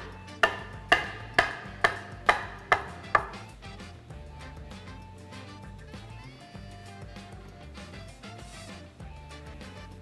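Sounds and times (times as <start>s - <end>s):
bench scraper chopping on wooden board: 0.0s - 3.5s.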